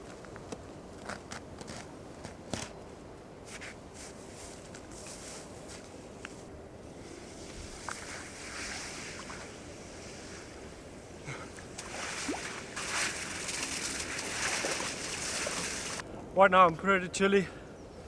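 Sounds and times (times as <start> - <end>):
sea water splashing and lapping: 7.6 - 10.7, 11.3 - 16.0.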